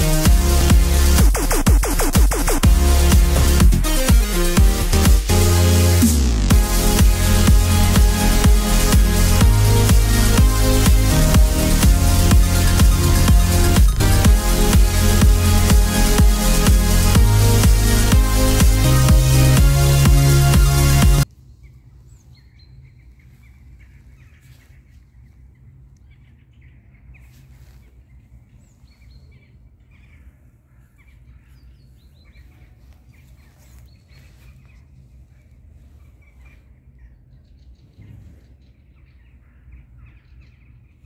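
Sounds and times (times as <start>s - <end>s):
steady low rumble: 0.0s - 31.6s
small birds chirping: 6.6s - 41.0s.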